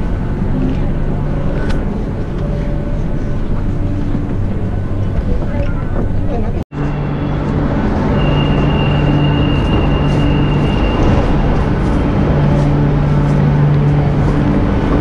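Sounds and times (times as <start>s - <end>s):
loud steady rumble: 0.0s - 15.0s
low hum: 0.0s - 15.0s
crowd footsteps: 8.6s - 15.0s.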